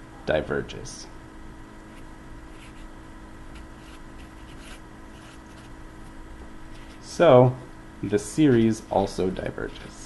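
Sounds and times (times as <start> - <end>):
steady low hum: 0.0 - 10.0
marker scratching on paper: 1.9 - 2.9, 3.5 - 5.8.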